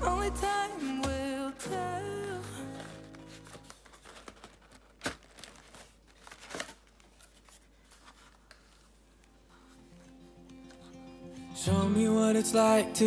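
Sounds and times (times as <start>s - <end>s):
tissue paper crinkling: 1.7s - 10.9s.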